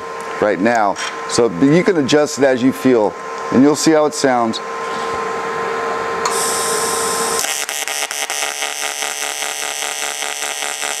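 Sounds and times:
welder hum: 3.0s - 11.0s
pulsing welding arc buzz: 6.2s - 11.0s.

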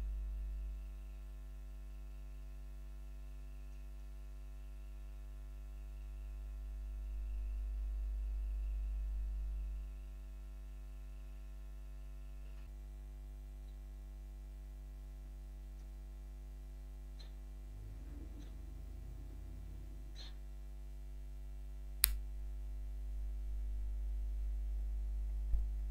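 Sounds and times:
faint high whine: 0.0s - 13.9s
electrical mains hum: 0.0s - 25.9s.

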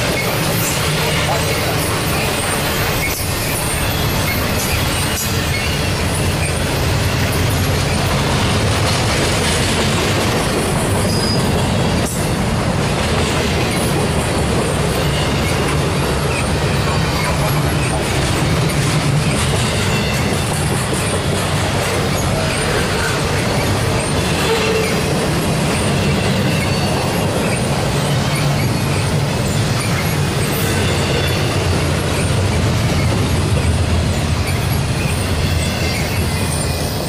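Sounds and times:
high wheel squeals: 0.0s - 8.3s, 10.6s - 12.4s, 14.9s - 21.2s, 21.8s - 33.4s, 34.1s - 37.0s
steel wheels rumbling on rail: 0.0s - 37.0s.

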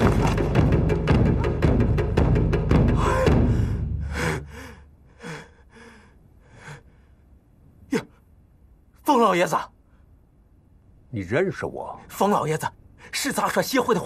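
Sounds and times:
loud percussive music: 0.0s - 3.6s
man panting and gasping: 2.9s - 7.2s.

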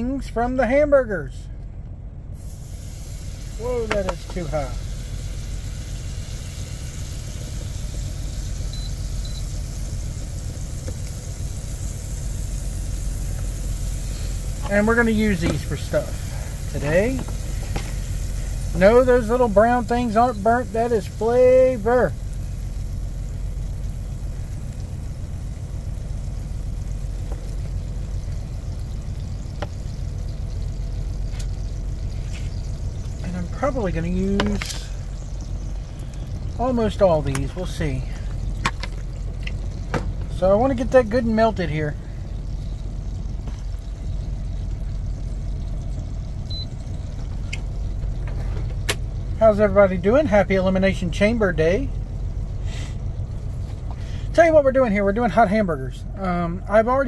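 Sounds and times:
diesel truck engine idling: 0.0s - 57.0s
faint high beeps: 8.7s - 9.5s, 46.5s - 46.8s.

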